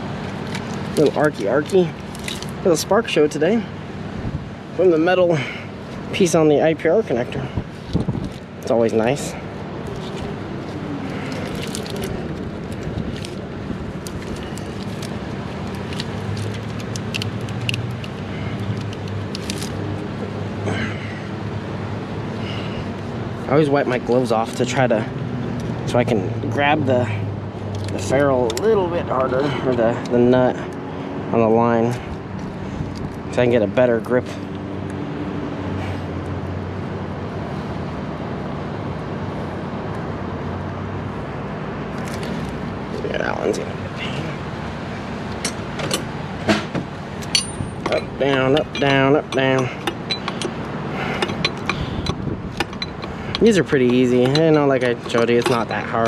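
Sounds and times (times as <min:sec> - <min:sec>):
engine humming: 0:00.0 - 0:56.0
tools clicking and tapping: 0:45.3 - 0:56.0.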